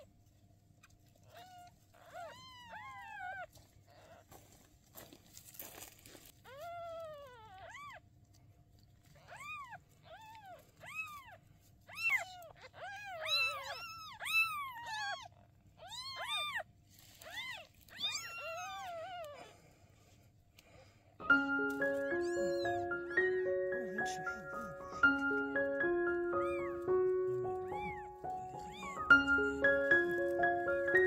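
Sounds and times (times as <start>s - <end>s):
kittens mewing: 9.1s - 19.8s, 21.3s - 31.0s.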